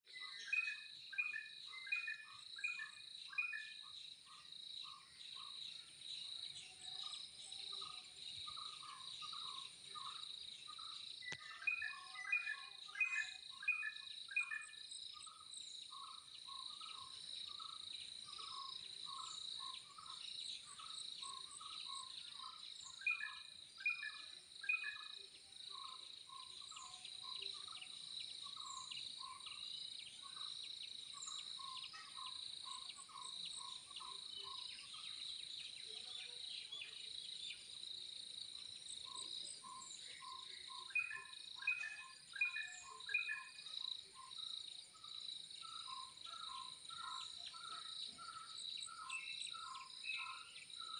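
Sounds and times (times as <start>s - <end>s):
birds chirping: 0.1s - 50.9s.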